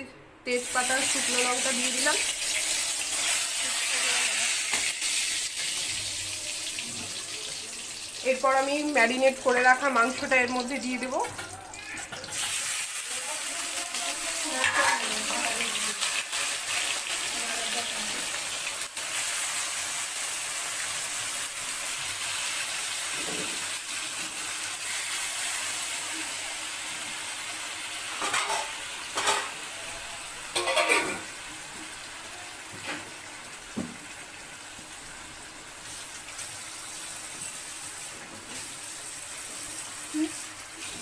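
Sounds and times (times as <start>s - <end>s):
meat sizzling in hot oil: 0.6s - 41.0s
metal clanks against wok: 30.5s - 31.3s.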